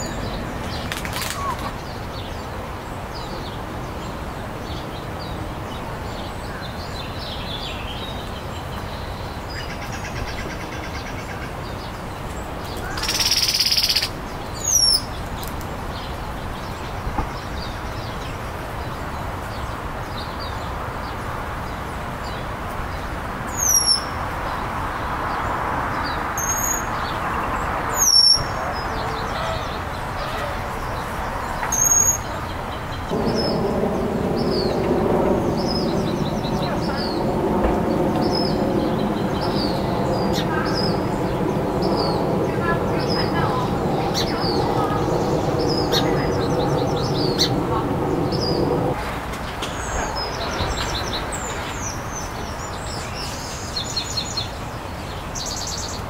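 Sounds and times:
songbird calls: 12.7 - 15.2, 26.0 - 33.6.

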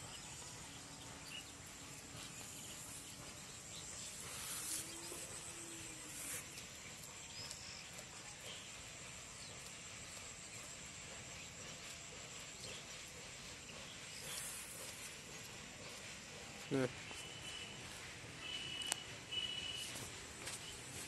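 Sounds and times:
high insect drone: 2.2 - 6.8.

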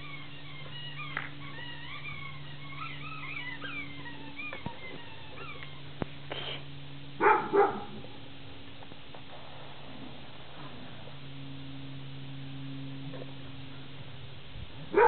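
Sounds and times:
faint steady hum: 0.0 - 15.0
dog barking: 7.2 - 8.1.

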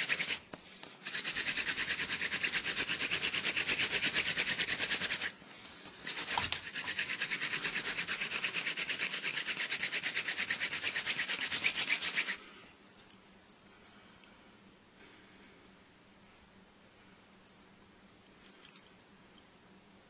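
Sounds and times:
hand drill grinding on wood: 0.0 - 12.4.

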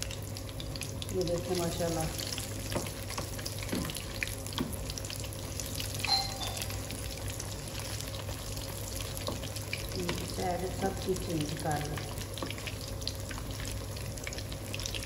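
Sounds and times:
food deep-frying in oil: 0.0 - 15.0
brief high tone: 6.0 - 7.0.

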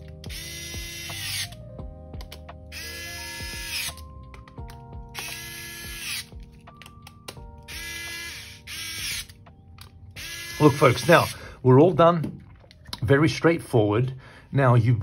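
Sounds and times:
background music: 0.0 - 15.0
electric screwdriver motor whirring: 0.2 - 1.6, 2.7 - 4.0, 5.1 - 6.4, 7.7 - 9.4, 10.2 - 11.4.

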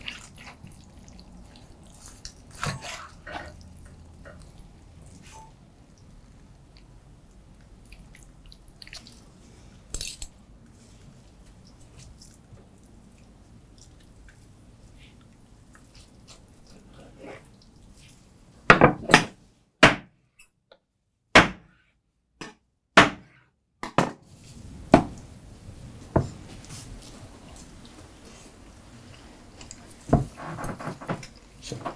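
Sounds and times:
knife and fork cutting fish: 2.1 - 3.6.

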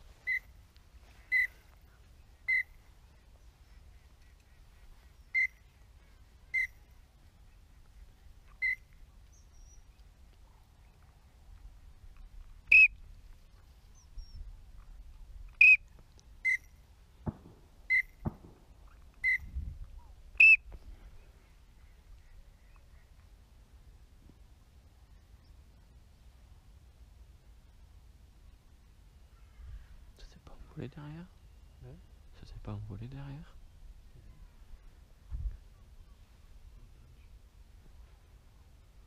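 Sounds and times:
low thump: 17.2 - 17.6.

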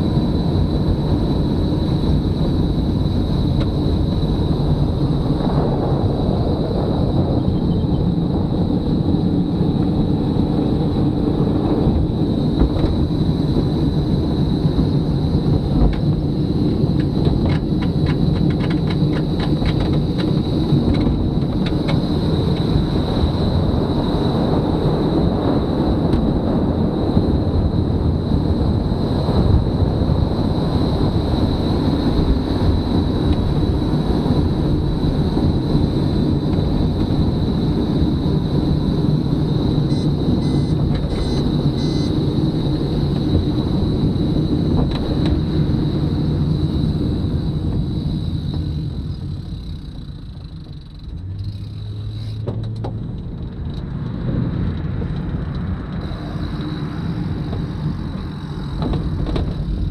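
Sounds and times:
tyre and road rumble: 0.0 - 59.9
wind: 0.0 - 59.9
thin high whine: 34.9 - 52.4.

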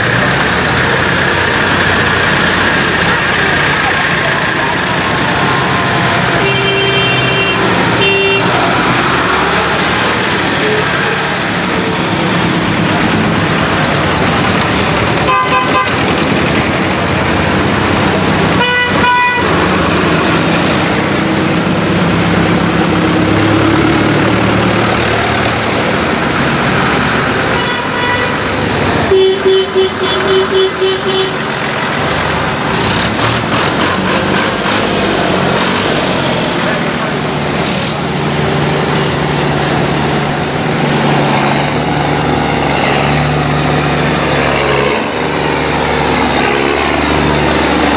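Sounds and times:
tractor engines running: 0.0 - 47.9
horns tooting: 5.4 - 9.1, 15.1 - 16.3, 18.5 - 19.7, 27.4 - 31.5.

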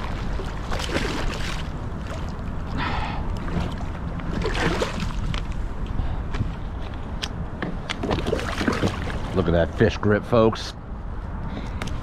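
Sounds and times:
fish splashing in water: 0.0 - 2.5, 3.4 - 5.3, 8.0 - 9.4.

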